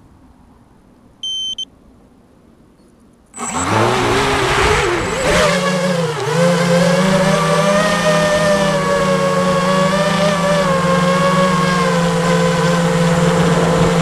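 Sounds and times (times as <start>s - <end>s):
electronic beeps: 1.2s - 1.7s
electric motor and propeller whine: 3.4s - 14.0s.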